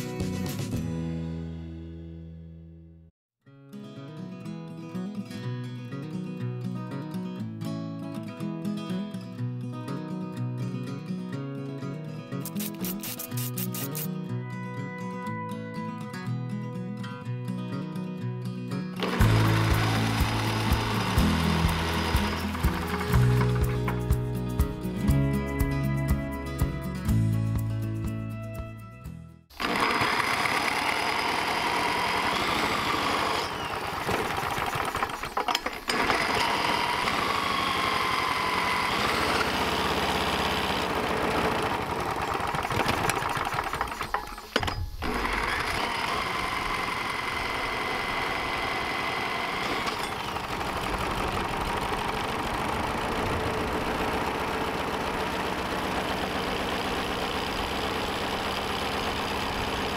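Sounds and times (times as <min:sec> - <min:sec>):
small engine running: 0:12.4 - 0:14.1, 0:19.0 - 0:25.6, 0:29.5 - 0:59.9
electric drill motor whine: 0:29.6 - 0:41.8, 0:42.6 - 0:53.8.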